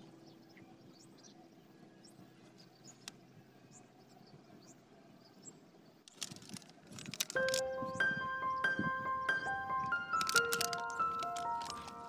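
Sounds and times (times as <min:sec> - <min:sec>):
high bird chirps: 0:07.4 - 0:12.0.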